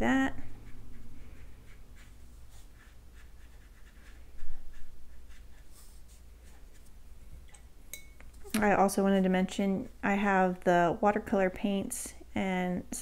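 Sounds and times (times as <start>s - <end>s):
brush stroking on paper: 0.4s - 7.0s.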